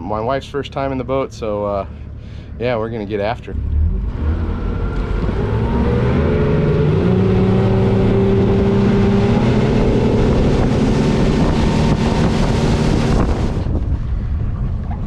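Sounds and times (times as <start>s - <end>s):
outboard motor revving: 1.8s - 14.9s
water rushing: 4.3s - 13.8s.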